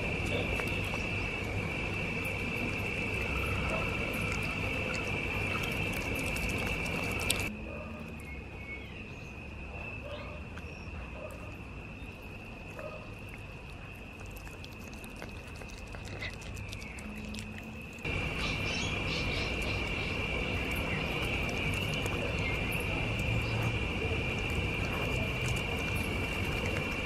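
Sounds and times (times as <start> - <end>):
dog eating from plastic container: 0.0 - 1.4, 2.4 - 7.5, 13.7 - 27.0
insects trilling: 0.0 - 27.0.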